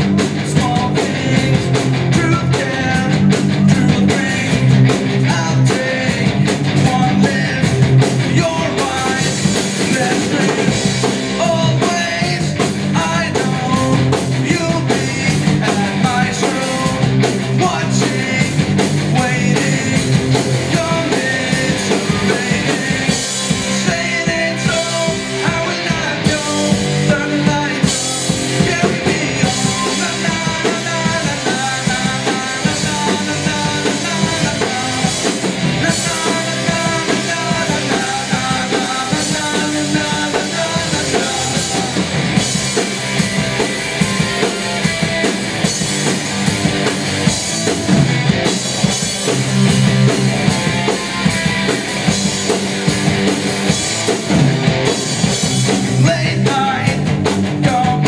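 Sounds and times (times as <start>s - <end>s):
person singing: 0.0s - 42.4s, 55.9s - 58.0s
bass guitar: 0.0s - 58.0s
drum kit: 0.0s - 58.0s
electric guitars: 0.0s - 58.0s.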